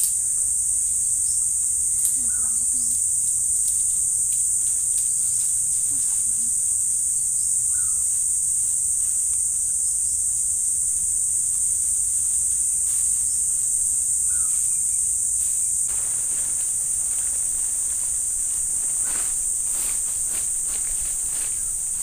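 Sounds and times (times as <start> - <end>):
forest insects buzzing: 0.0 - 22.0
faint rustling: 12.2 - 22.0.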